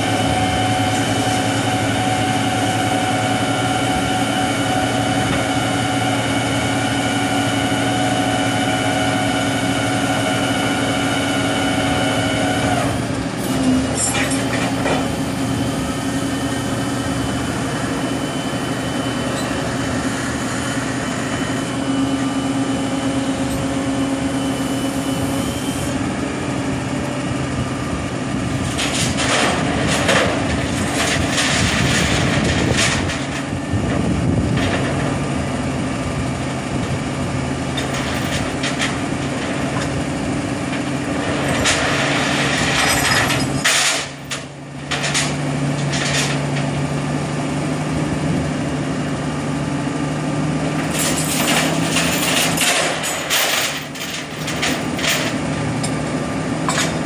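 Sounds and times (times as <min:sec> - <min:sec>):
hydraulic winch whine: 0:00.0 - 0:26.1
truck engine humming: 0:00.0 - 0:57.0.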